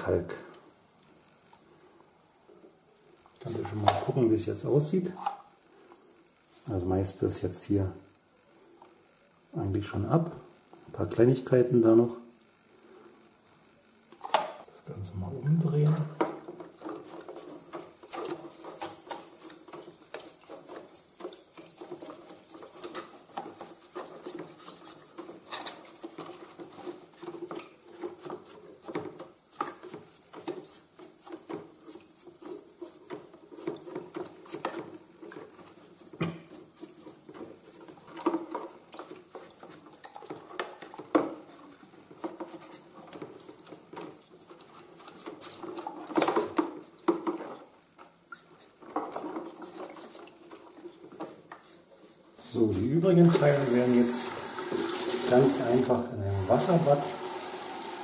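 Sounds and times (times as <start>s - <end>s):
brush bristles scratching: 16.6s - 29.2s, 48.4s - 58.0s.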